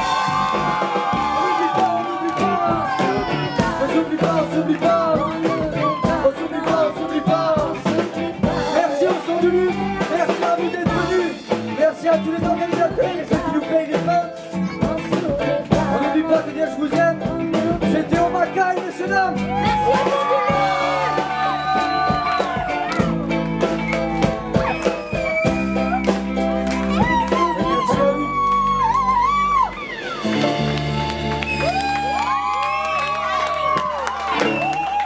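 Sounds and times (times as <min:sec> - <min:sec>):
drum kit: 0:00.0 - 0:35.0
person singing: 0:01.1 - 0:23.0, 0:26.9 - 0:29.1.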